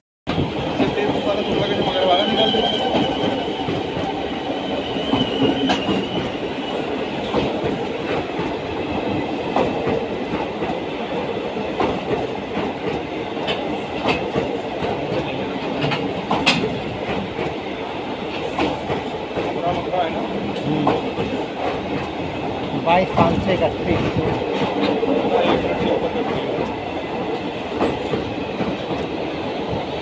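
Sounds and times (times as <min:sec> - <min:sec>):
train coaches rumbling past: 0:00.3 - 0:30.0.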